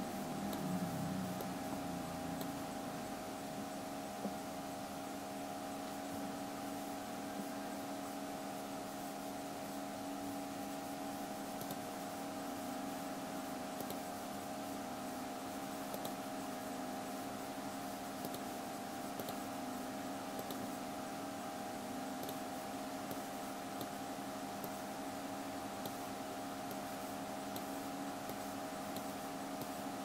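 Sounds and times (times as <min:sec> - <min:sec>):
equipment hum and hiss: 0:00.0 - 0:30.0
computer mouse clicks: 0:00.5 - 0:00.7, 0:02.4 - 0:02.6, 0:11.6 - 0:11.8, 0:13.8 - 0:14.0, 0:15.9 - 0:16.2, 0:18.2 - 0:18.5, 0:19.2 - 0:19.4, 0:20.3 - 0:20.7, 0:22.2 - 0:22.4, 0:23.0 - 0:24.0, 0:24.6 - 0:24.8, 0:25.8 - 0:26.0, 0:26.6 - 0:26.9, 0:27.5 - 0:29.8.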